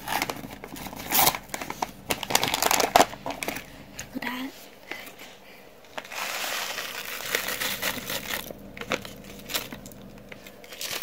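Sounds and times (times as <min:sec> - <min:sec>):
packet rustling and clicking: 0:00.0 - 0:04.1, 0:05.9 - 0:11.0
dry mix pouring from crinkly packet: 0:06.0 - 0:11.0.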